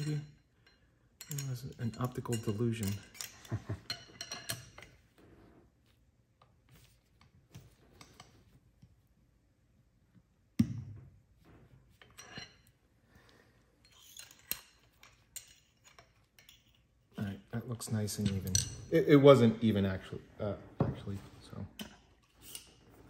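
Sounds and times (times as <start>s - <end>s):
metal parts ticking and clinking: 0.0s - 5.0s, 13.8s - 16.9s.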